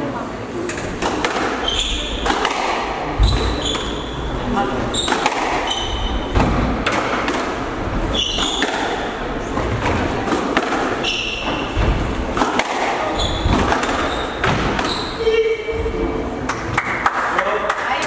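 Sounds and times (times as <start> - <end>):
squash ball hits: 0.9 - 4.0, 4.9 - 15.1
shoes squeaking on wooden floor: 1.6 - 2.2, 3.1 - 6.5, 8.0 - 12.3, 13.0 - 15.5.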